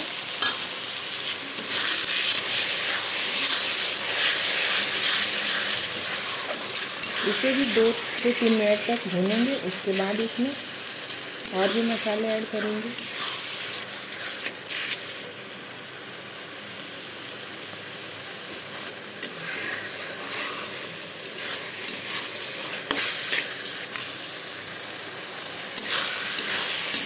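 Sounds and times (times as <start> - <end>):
onion sizzling in oil: 0.0 - 27.0
spatula scraping and stirring: 1.5 - 10.4, 11.4 - 15.2, 18.5 - 24.2, 25.7 - 27.0.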